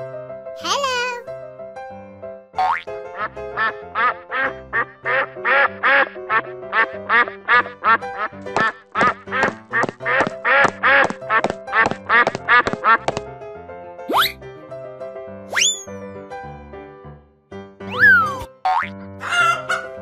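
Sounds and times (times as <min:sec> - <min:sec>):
bouncy children's music: 0:00.6 - 0:01.2, 0:17.8 - 0:20.0.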